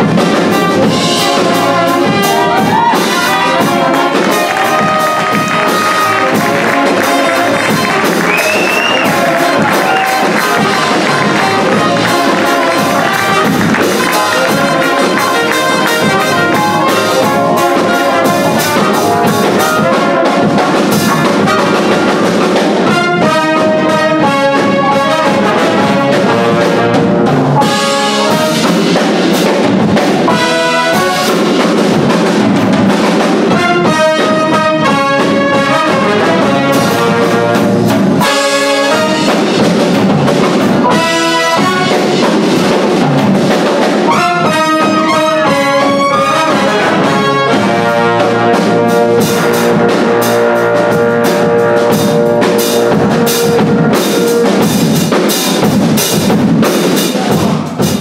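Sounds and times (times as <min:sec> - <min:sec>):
electric bass: 0:00.0 - 0:22.3
brass and saxophone section: 0:00.0 - 0:58.0
drum kit: 0:00.0 - 0:58.0
trumpet: 0:00.0 - 0:58.0
horn chord hits: 0:00.7 - 0:22.0.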